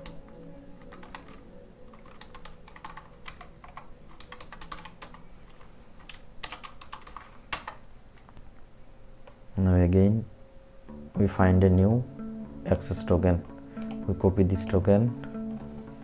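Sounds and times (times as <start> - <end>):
typing on computer keyboard: 0.8 - 5.2, 6.0 - 7.8.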